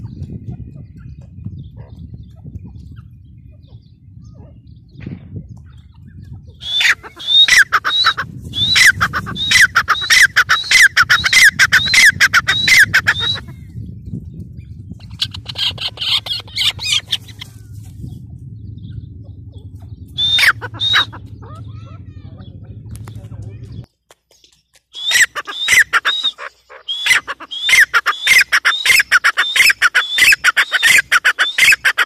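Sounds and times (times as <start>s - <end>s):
harsh bird chatter: 0.0s - 32.0s
francolin calling: 6.6s - 13.6s, 20.1s - 21.6s, 25.0s - 32.0s.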